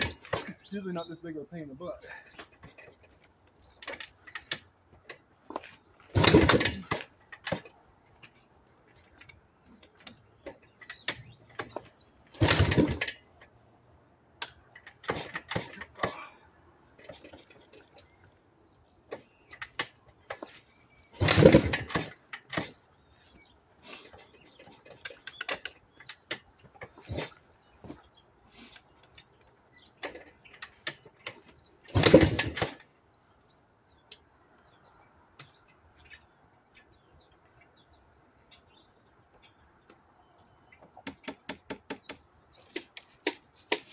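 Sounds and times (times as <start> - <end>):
motorcycle engine turning over: 3.8 - 7.7, 9.9 - 13.2, 20.4 - 22.8, 30.0 - 32.9
kick lever clicks and scuffs: 40.8 - 43.9.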